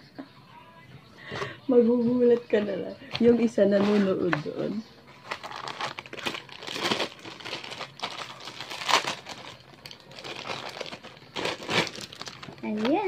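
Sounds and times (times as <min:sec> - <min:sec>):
plastic bag crinkling: 0:05.2 - 0:13.0.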